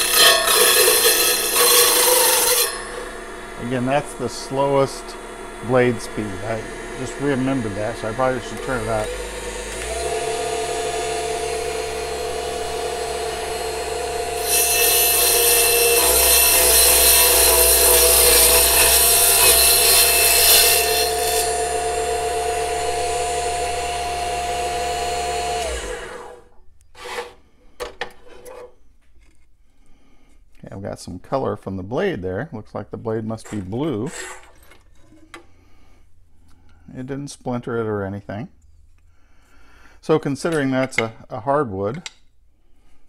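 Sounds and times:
table saw motor running: 0.0 - 26.5
saw blade cutting wood: 0.0 - 27.4, 33.4 - 34.6.

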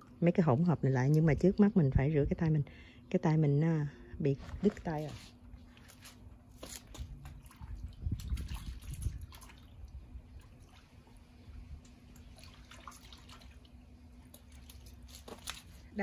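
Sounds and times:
water splashing and dripping: 4.5 - 16.0.

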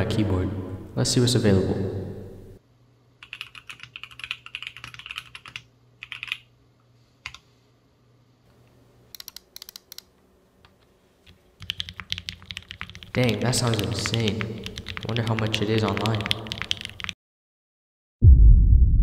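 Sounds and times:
mechanical keyboard typing: 3.2 - 6.5, 9.1 - 10.1, 11.6 - 17.2.

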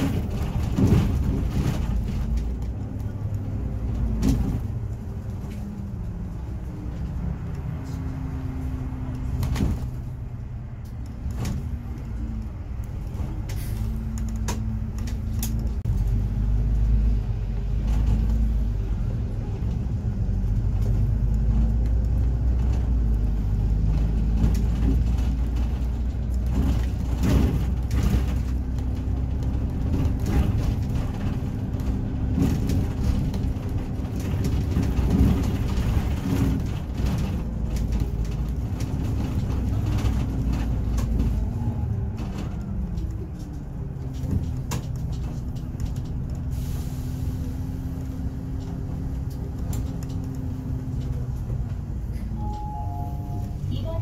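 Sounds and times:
bus engine rumbling: 0.0 - 54.0.

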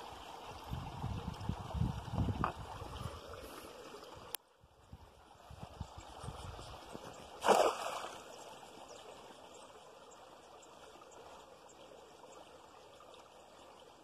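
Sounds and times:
cast net splashing into water: 7.3 - 8.3.

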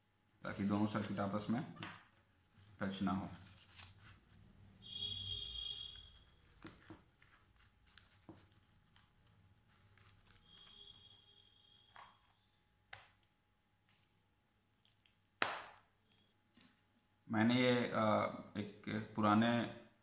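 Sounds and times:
paper crumpling: 6.5 - 10.7.

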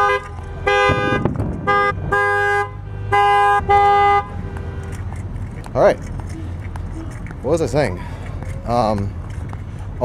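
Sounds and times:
car horn honking: 0.0 - 5.1.

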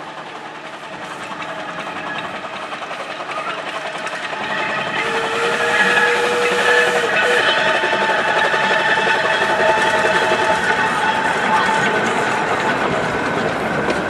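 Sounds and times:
steam locomotive running: 0.0 - 14.0
steam whistle: 4.9 - 11.8.

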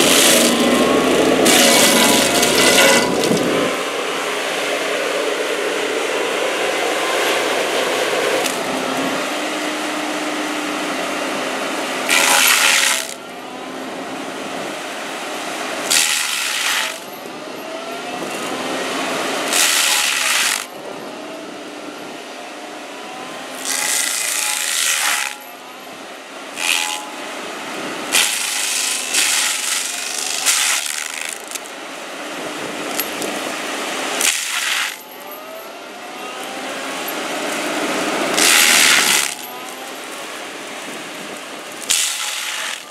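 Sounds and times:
grinder whine: 0.0 - 42.9
stump grinder rotor running: 0.0 - 42.9
wood chipping bursts: 38.3 - 39.5, 41.8 - 42.9.

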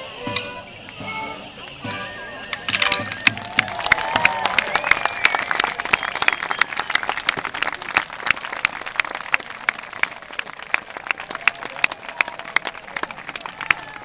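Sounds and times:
crowd applauding: 1.6 - 14.0.

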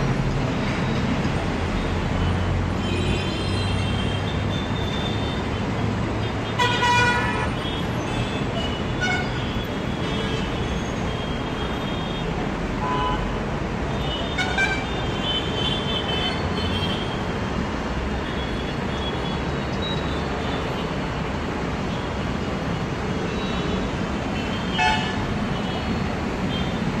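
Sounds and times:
road traffic rumble: 0.0 - 27.0.

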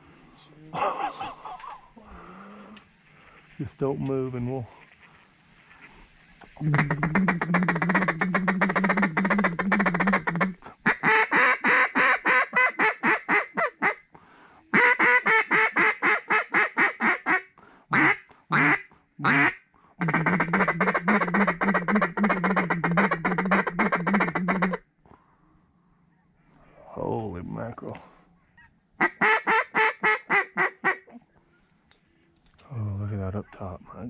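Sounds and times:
duck call quacks: 6.6 - 14.0, 14.7 - 24.8, 29.0 - 31.1
duck call rolling chatter: 6.6 - 14.0, 14.7 - 24.8, 29.0 - 31.1.

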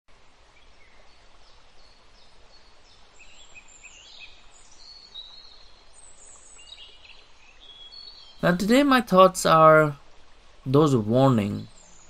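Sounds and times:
faint outdoor hiss: 0.1 - 12.0
songbirds chirping and singing: 3.0 - 10.0.

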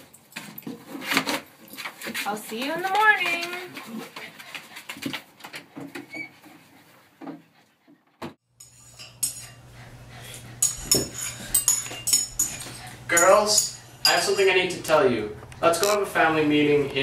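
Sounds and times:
spoons clinking against bowls: 8.6 - 9.6, 10.3 - 14.9.

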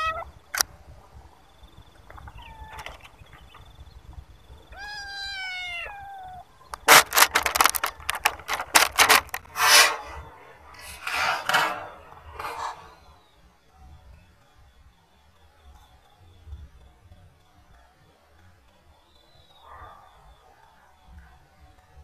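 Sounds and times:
kitten meowing: 0.0 - 0.3, 4.7 - 6.4
sharp clicks and crackles: 6.7 - 11.9
rustling: 6.8 - 13.2.

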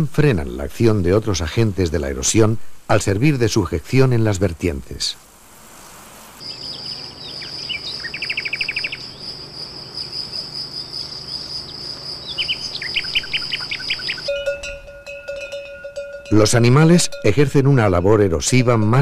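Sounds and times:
bird chirping: 6.4 - 16.0
insect trilling: 6.4 - 18.0.

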